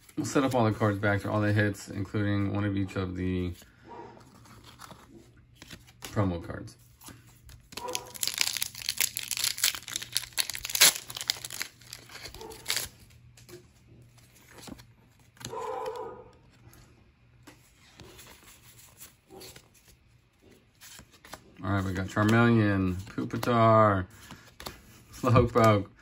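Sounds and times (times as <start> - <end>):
foil wrapper tearing and crinkling: 7.5 - 13.2.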